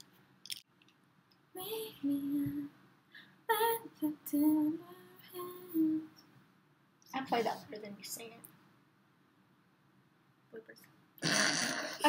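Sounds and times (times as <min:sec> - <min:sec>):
woman singing wordless notes: 0:01.6 - 0:02.7, 0:03.5 - 0:06.2.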